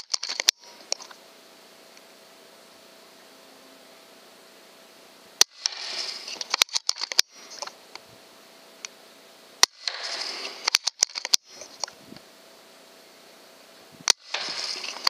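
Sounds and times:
quick clicks: 0:00.0 - 0:01.2, 0:05.4 - 0:08.0, 0:09.6 - 0:12.0, 0:14.0 - 0:15.0
noisy rustle: 0:00.0 - 0:15.0
air rifle shots: 0:05.4 - 0:07.7, 0:09.6 - 0:11.7, 0:14.1 - 0:15.0.

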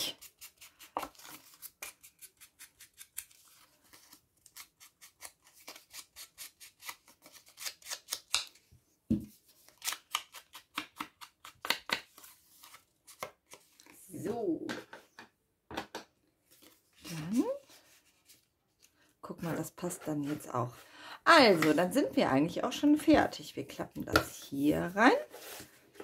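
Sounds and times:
scissors snipping paper: 0:00.0 - 0:03.6, 0:09.7 - 0:12.0.

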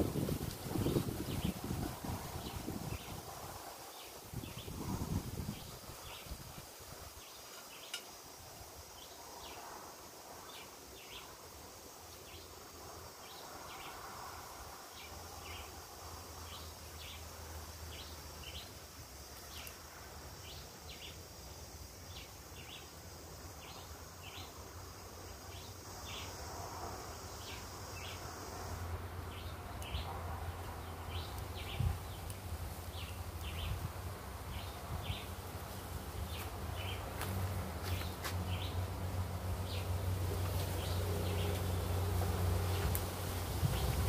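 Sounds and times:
high insect drone: 0:00.0 - 0:44.0
charcoal rustling and clicks: 0:40.2 - 0:44.0.

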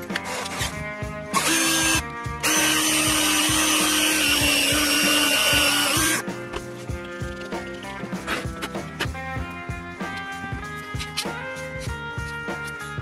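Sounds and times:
background music with a beat: 0:00.0 - 0:13.0
electric drill running: 0:01.3 - 0:06.2.

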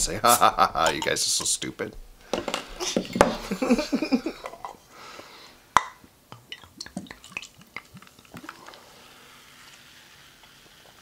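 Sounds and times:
small ticks and drips: 0:06.3 - 0:08.8
soda pouring into cups: 0:06.4 - 0:11.0.

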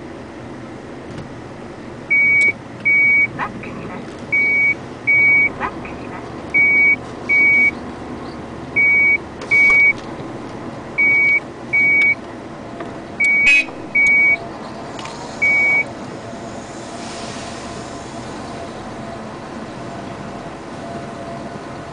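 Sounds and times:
low machinery rumble: 0:00.0 - 0:21.9
back-up alarm beeping: 0:02.1 - 0:03.4, 0:04.3 - 0:06.0, 0:06.6 - 0:07.8, 0:08.8 - 0:10.0, 0:11.0 - 0:12.2, 0:13.2 - 0:14.4, 0:15.4 - 0:15.9.

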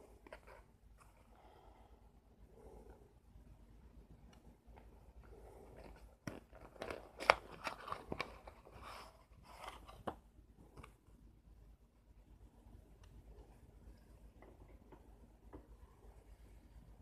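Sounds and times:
cardboard box crackling: 0:05.8 - 0:10.2.

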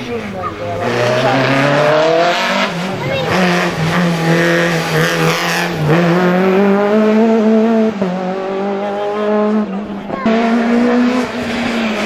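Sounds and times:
car engine revving hard: 0:00.1 - 0:12.0.

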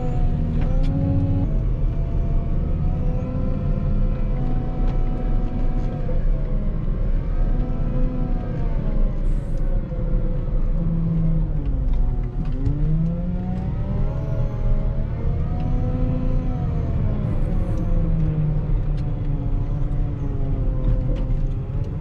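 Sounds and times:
wheel loader diesel engine revving: 0:00.0 - 0:06.0.

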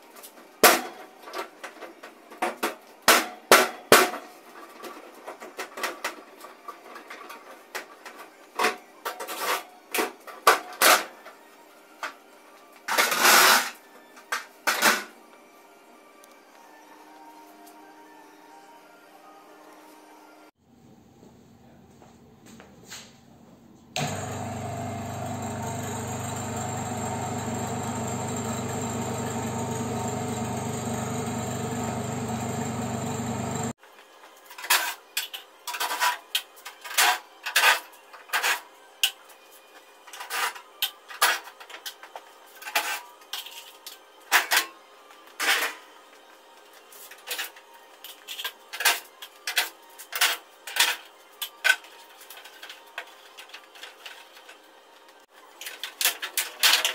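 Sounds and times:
machine pump humming: 0:24.0 - 0:33.8.

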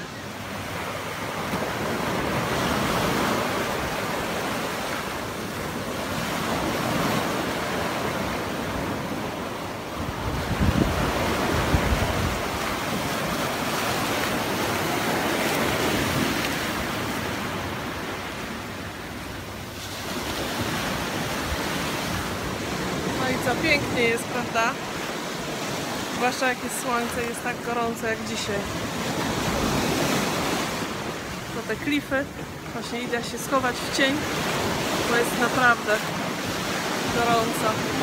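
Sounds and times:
wind buffeting microphone: 0:10.0 - 0:12.6.

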